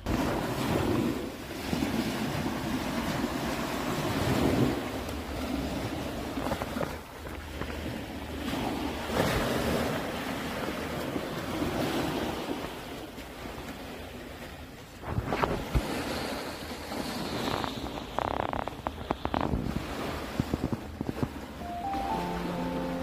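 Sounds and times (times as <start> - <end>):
small waves breaking on sand: 0.0 - 23.0
wind on microphone: 15.0 - 21.6.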